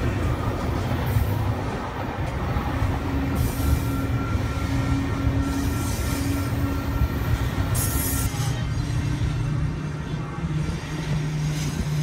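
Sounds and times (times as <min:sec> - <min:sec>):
freight train wheels rumbling: 0:00.0 - 0:12.0
train wheels squealing: 0:02.5 - 0:12.0.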